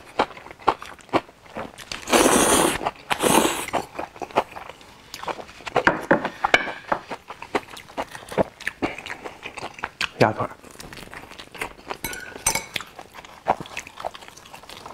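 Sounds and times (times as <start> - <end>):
chewing: 0.0 - 5.8, 6.4 - 12.0, 12.6 - 14.9
noodle slurping: 2.0 - 4.0.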